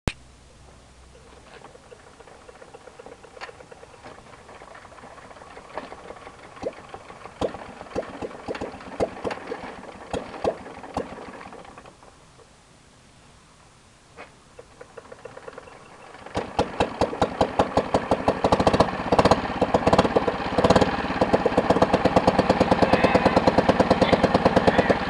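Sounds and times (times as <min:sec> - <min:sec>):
engine firing knocks: 0:01.6 - 0:11.8, 0:14.6 - 0:25.0
stationary engine running unevenly: 0:15.0 - 0:25.0.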